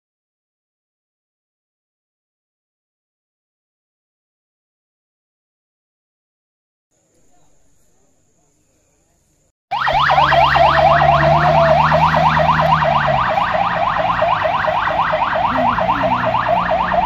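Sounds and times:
ambulance siren yelping: 9.7 - 17.0.

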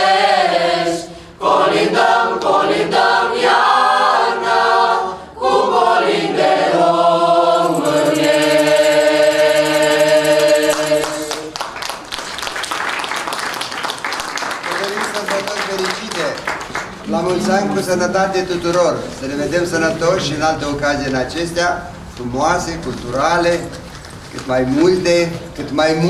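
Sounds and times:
choir singing a cappella: 0.0 - 11.6, 17.1 - 18.6
applause: 10.8 - 17.1.

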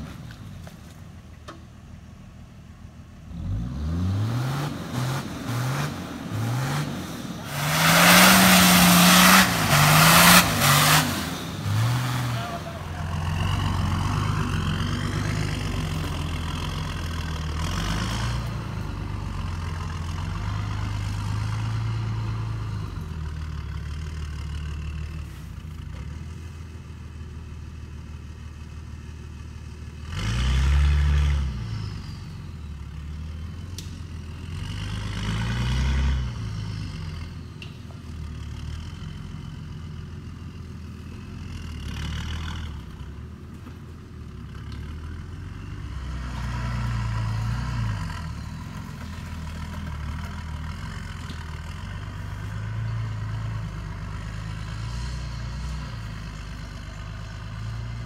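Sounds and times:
vehicle engine labouring uphill: 0.0 - 58.0.

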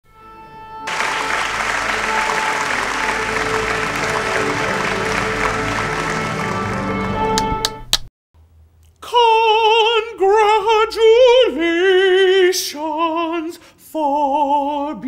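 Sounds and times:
music: 0.0 - 8.1
person singing operatic unaccompanied: 9.0 - 15.0.

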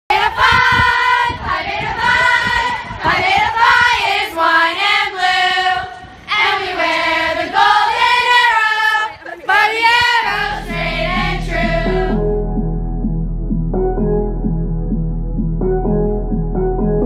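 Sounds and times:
high voice singing sliding notes: 9.6 - 12.4.

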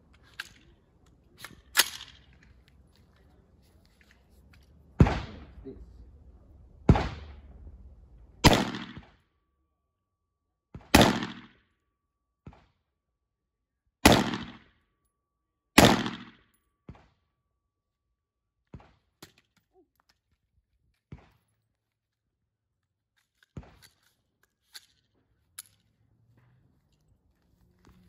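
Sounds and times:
pistol gunshots: 6.9 - 7.4, 8.4 - 9.2, 10.8 - 11.6, 14.0 - 14.7, 15.8 - 16.4.

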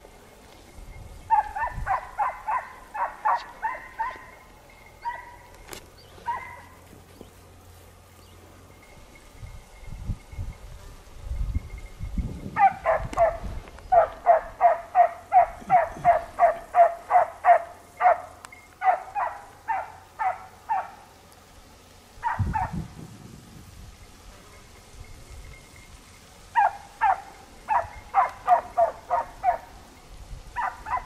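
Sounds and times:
dog barking: 1.3 - 4.3, 5.0 - 5.4, 6.2 - 6.8, 12.6 - 21.0, 22.2 - 22.7, 26.6 - 29.7, 30.6 - 31.0.

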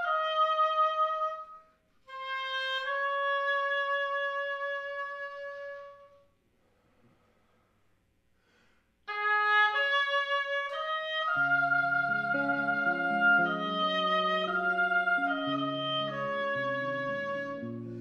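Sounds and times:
woodwind playing notes: 0.0 - 6.3, 9.1 - 18.0
electric guitar notes: 11.4 - 18.0.

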